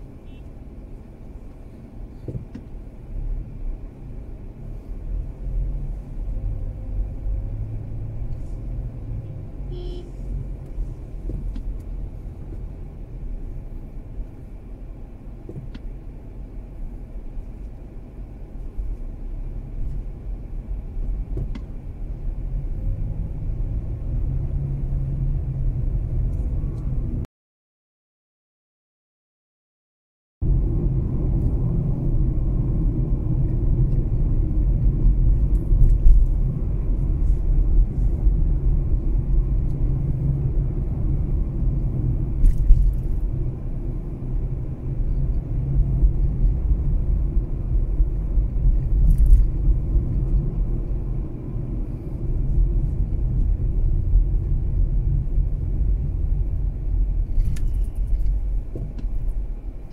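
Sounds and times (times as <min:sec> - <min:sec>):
car road and engine noise: 0:00.0 - 0:27.3, 0:30.4 - 0:59.9.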